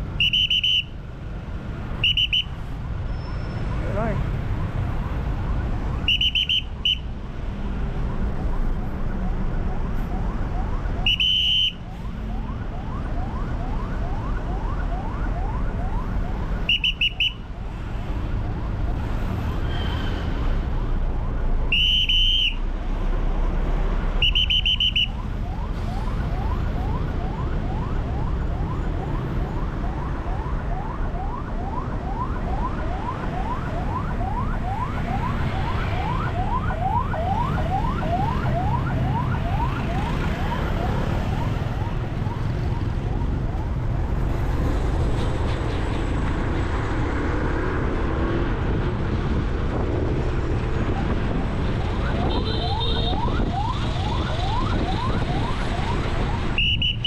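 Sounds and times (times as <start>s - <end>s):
idling traffic rumble: 0.0s - 57.0s
ambulance siren yelping: 8.0s - 17.6s, 24.2s - 44.3s, 50.8s - 57.0s.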